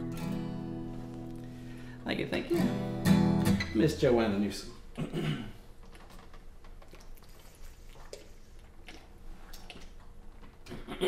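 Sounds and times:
person sipping and swallowing: 0:06.8 - 0:11.0.

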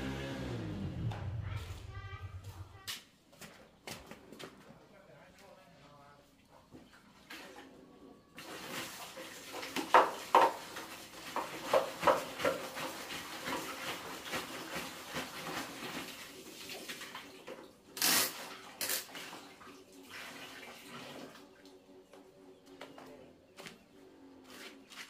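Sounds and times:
water sloshing and splashing: 0:06.4 - 0:22.2.

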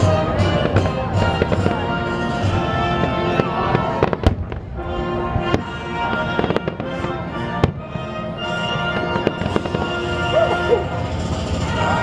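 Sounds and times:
fireworks bursting: 0:00.0 - 0:12.0
music: 0:00.0 - 0:12.0.

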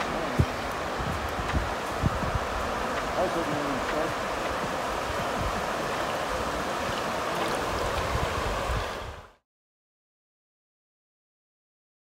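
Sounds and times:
flowing river water: 0:00.0 - 0:09.4.

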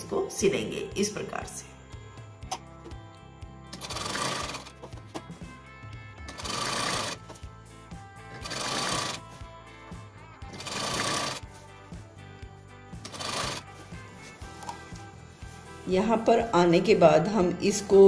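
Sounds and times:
background music: 0:00.0 - 0:18.0
sewing machine stitching: 0:03.7 - 0:04.8, 0:06.3 - 0:07.2, 0:08.3 - 0:09.2, 0:10.5 - 0:11.4, 0:13.0 - 0:13.7.

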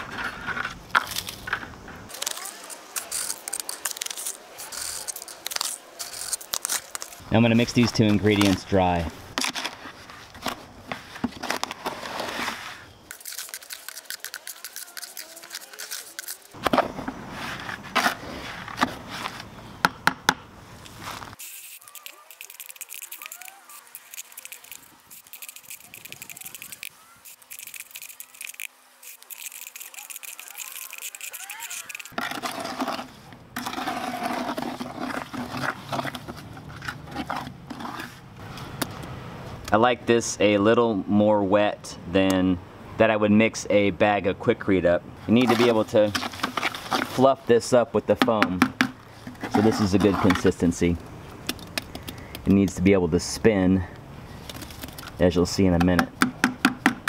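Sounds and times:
gritty scraping in a bucket: 0:00.0 - 0:19.5, 0:20.9 - 0:38.7, 0:45.2 - 0:47.7, 0:49.1 - 0:51.0
trowel scraping wet cement in bucket: 0:11.0 - 0:16.7, 0:29.1 - 0:38.2, 0:45.3 - 0:47.3, 0:49.3 - 0:50.8.

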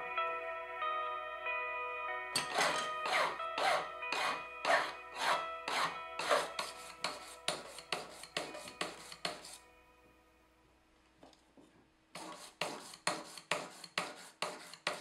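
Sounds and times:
file rasping on metal ring: 0:02.4 - 0:09.6, 0:12.2 - 0:15.0.

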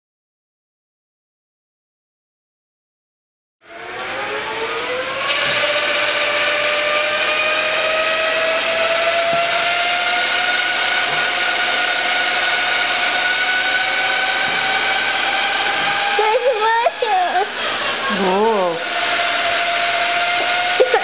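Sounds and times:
electric helicopter motor whine: 0:03.7 - 0:21.0.

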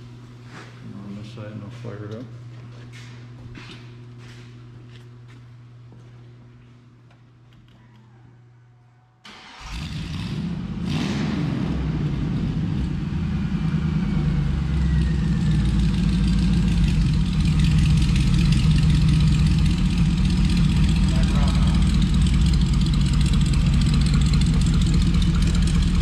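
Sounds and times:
car engine starting and idling: 0:09.2 - 0:26.0.

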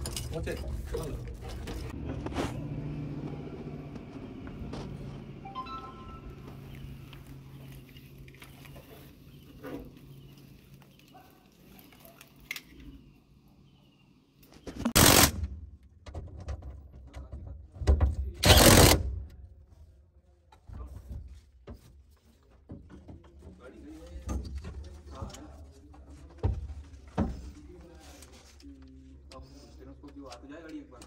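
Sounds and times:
parts rattling: 0:00.0 - 0:02.0
cordless power driver bursts: 0:15.0 - 0:15.4, 0:18.4 - 0:19.1.

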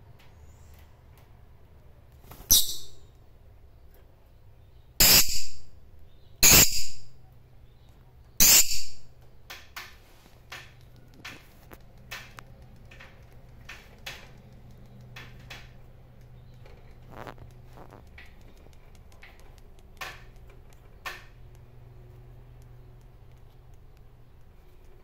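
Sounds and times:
lovebird high calls: 0:02.5 - 0:03.0, 0:05.0 - 0:05.7, 0:06.4 - 0:07.1, 0:08.4 - 0:09.0
lovebird short chirps: 0:02.5 - 0:03.1, 0:05.0 - 0:05.7, 0:06.4 - 0:07.1, 0:08.4 - 0:09.0.

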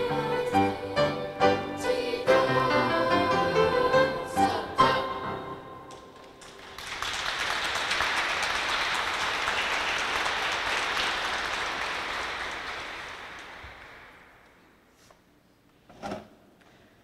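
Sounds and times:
choir and piano song: 0:00.0 - 0:06.9
audience applauding: 0:06.1 - 0:14.6.

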